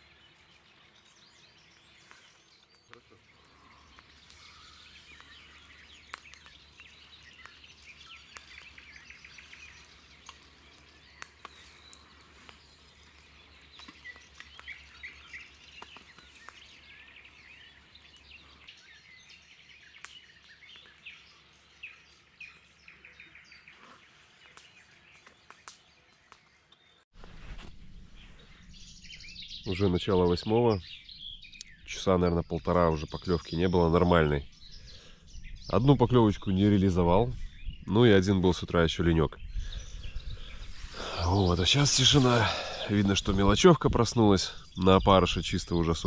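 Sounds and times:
small birds chirping: 0:00.0 - 0:27.1, 0:28.0 - 0:46.0.

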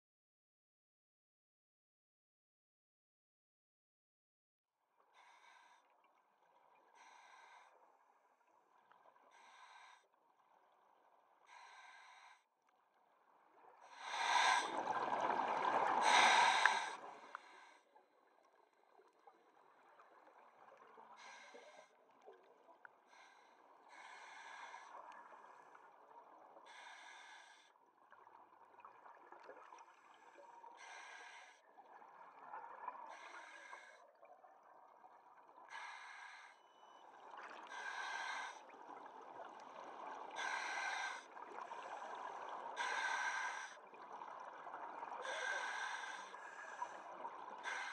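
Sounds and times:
exhaled bubbles rushing: 0:14.6 - 0:16.1
regulator hissing breaths: 0:16.0 - 0:17.8, 0:35.7 - 0:36.6, 0:45.2 - 0:46.8, 0:47.6 - 0:47.9.

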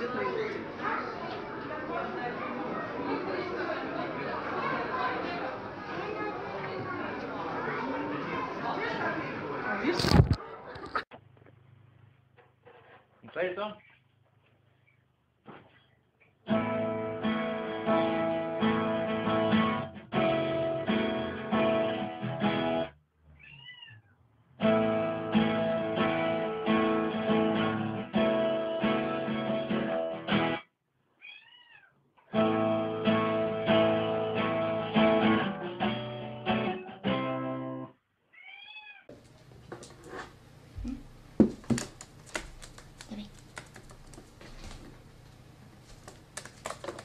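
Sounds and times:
guitar music: 0:16.5 - 0:22.9, 0:24.6 - 0:30.6, 0:32.3 - 0:37.9
cat meowing: 0:23.4 - 0:24.2, 0:31.2 - 0:32.0, 0:38.3 - 0:39.1.

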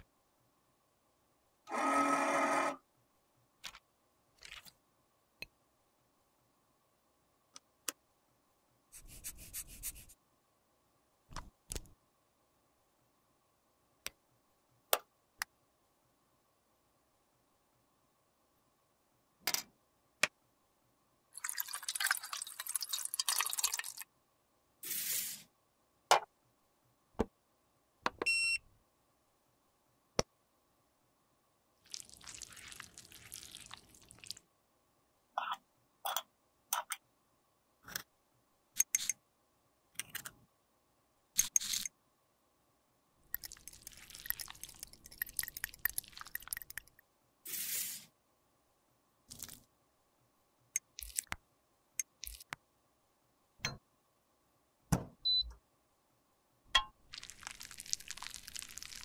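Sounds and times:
liquid trickling into beaker: 0:21.4 - 0:24.1, 0:31.9 - 0:34.4, 0:43.4 - 0:47.0, 0:57.1 - 0:59.0.

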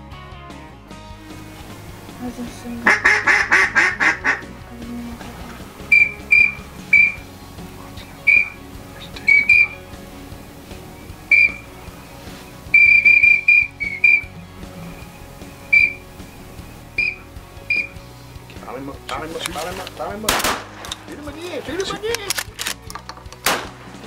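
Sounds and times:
whistled duck calls: 0:02.8 - 0:04.5, 0:05.9 - 0:07.3, 0:08.1 - 0:09.9, 0:11.2 - 0:11.7, 0:12.6 - 0:14.4, 0:15.7 - 0:16.1, 0:17.0 - 0:18.0.

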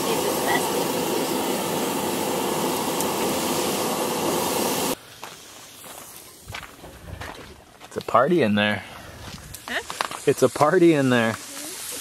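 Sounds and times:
steak sizzling: 0:00.0 - 0:06.5, 0:09.6 - 0:12.0
gas griddle hissing: 0:00.0 - 0:06.6, 0:08.7 - 0:12.0.

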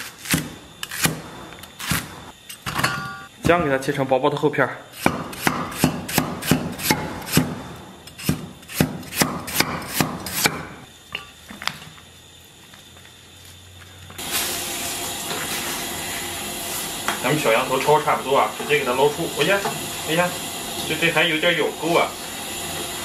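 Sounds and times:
cleaver chopping on wooden block: 0:05.0 - 0:07.6, 0:08.2 - 0:10.8
water boiling hard with hiss: 0:14.2 - 0:23.0.

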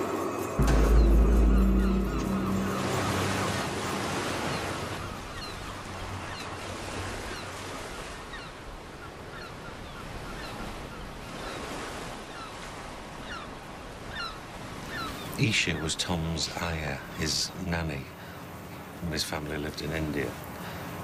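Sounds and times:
sea surf washing ashore: 0:00.0 - 0:09.0
gulls calling: 0:00.2 - 0:08.6.

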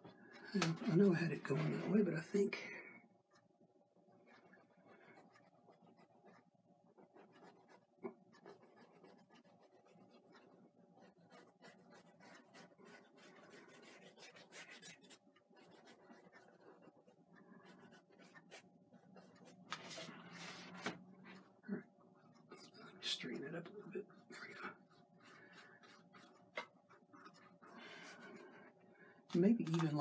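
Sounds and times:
paintbrush scrubbing canvas: 0:04.2 - 0:21.5, 0:24.1 - 0:28.8.

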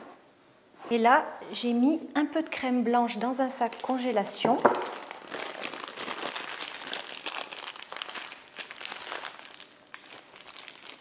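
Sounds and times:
plastic bag crinkling: 0:03.4 - 0:11.0.

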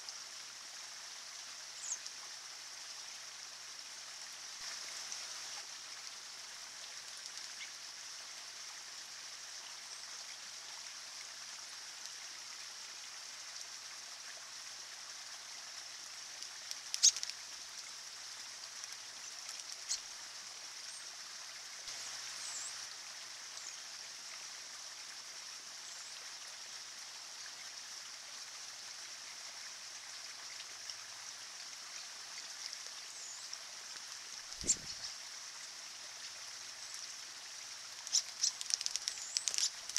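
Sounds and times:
stream trickling over rocks: 0:00.0 - 0:39.9
sharp clicks: 0:16.6 - 0:17.4, 0:38.0 - 0:39.9.

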